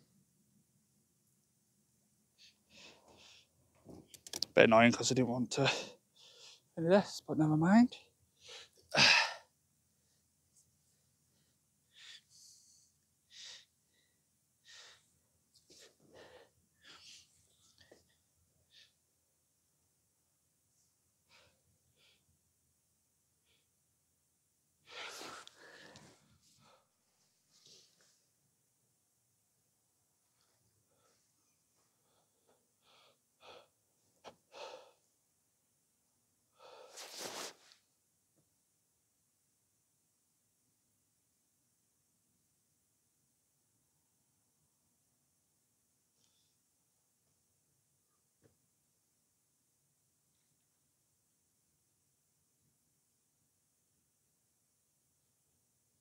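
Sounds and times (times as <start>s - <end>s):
person breathing and sniffing: 24.9s - 26.9s, 36.6s - 37.8s
faint breath puffs: 36.6s - 37.8s.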